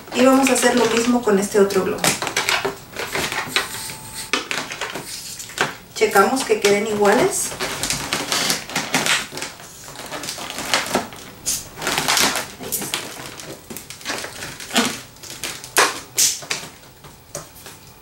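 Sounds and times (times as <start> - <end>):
balloons squeaking and rubbing: 2.8 - 16.5.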